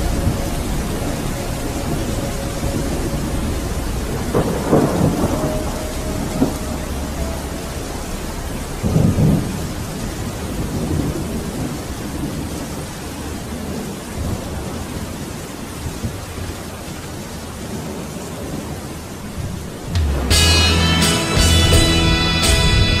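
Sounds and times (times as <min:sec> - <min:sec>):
steady rain: 0:00.0 - 0:23.0
thunder rumbling: 0:00.0 - 0:23.0.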